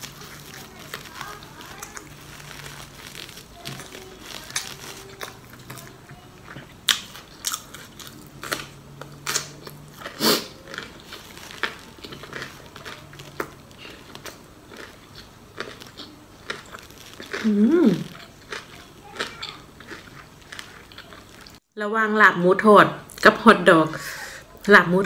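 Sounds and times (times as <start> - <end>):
chewing crispy food: 0.0 - 21.6.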